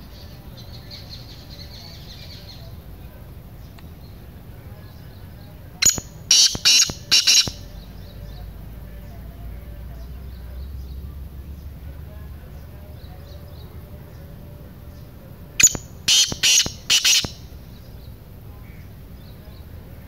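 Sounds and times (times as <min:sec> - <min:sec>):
faint bird chirps: 0:00.0 - 0:19.9
francolin calling harsh notes: 0:05.8 - 0:07.6, 0:15.6 - 0:17.6.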